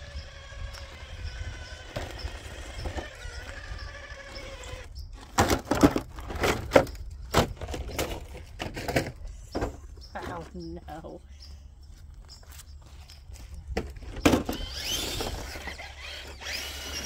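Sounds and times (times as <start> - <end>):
toy truck electric motor whining: 0.0 - 5.3, 14.2 - 17.0.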